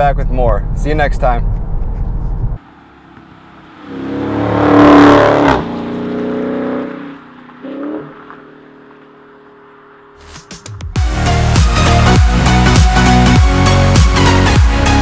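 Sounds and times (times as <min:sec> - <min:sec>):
car engine accelerating hard: 0:02.6 - 0:10.2.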